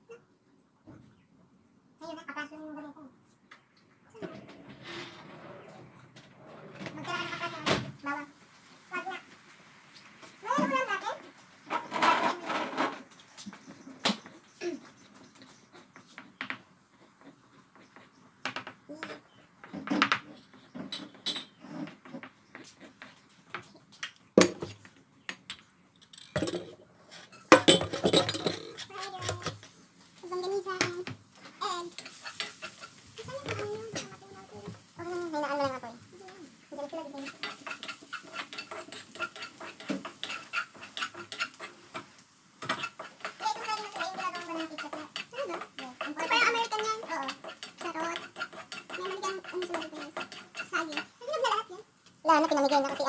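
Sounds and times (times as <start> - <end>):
spatula scraping frying pan: 4.2 - 7.7, 11.6 - 13.8, 26.1 - 53.0
kitchen utensils clicking and knocking: 18.4 - 22.3, 24.4 - 29.7, 30.4 - 51.7.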